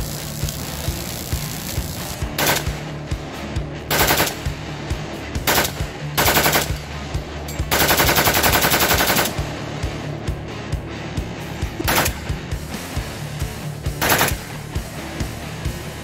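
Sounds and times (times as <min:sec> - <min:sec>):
rifle firing bursts: 0:01.2 - 0:02.9, 0:03.9 - 0:04.5, 0:05.5 - 0:06.8, 0:07.7 - 0:09.5, 0:11.8 - 0:12.3, 0:14.0 - 0:14.5.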